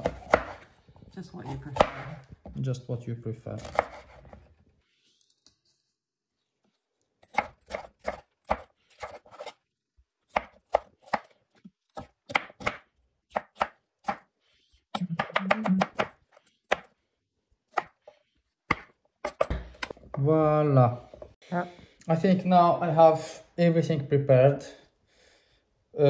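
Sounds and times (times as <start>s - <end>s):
knife chopping on wooden board: 0.0s - 0.7s, 1.5s - 2.6s, 3.6s - 4.4s, 7.2s - 9.6s, 10.3s - 11.3s, 11.9s - 14.3s, 17.7s - 18.1s, 18.7s - 20.1s.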